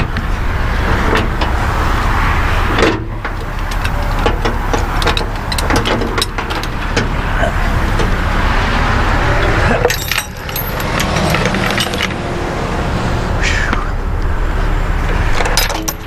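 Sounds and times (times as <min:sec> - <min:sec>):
diesel truck engine idling: 0:00.0 - 0:15.6
road traffic: 0:00.0 - 0:16.0
sharp knocks and clinks: 0:09.4 - 0:12.2.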